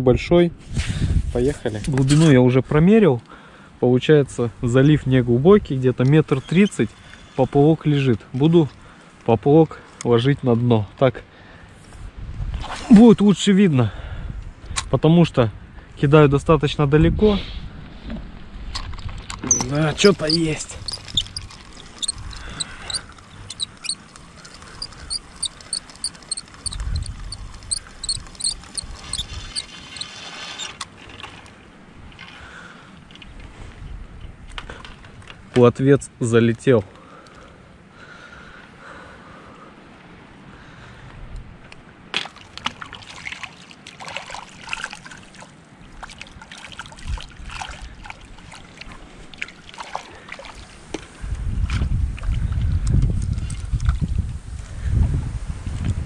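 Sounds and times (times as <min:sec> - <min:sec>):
wind buffeting microphone: 0:00.7 - 0:01.8, 0:12.0 - 0:12.7, 0:17.0 - 0:29.9, 0:51.1 - 0:56.0
high squeaky chirps: 0:19.5 - 0:30.1
shallow water splashing on shore: 0:42.2 - 0:50.9.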